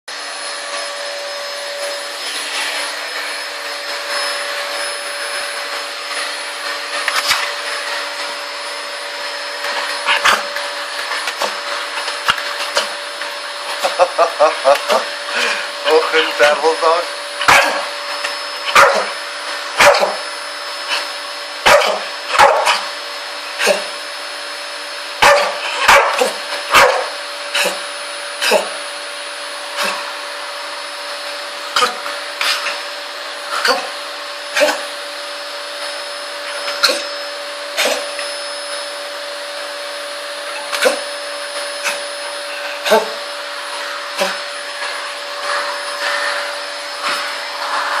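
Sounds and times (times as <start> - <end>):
vacuum cleaner motor hum: 0.1 - 48.0
dog barking: 17.5 - 17.8, 18.7 - 19.1, 19.8 - 20.2, 21.6 - 22.8, 25.2 - 27.2.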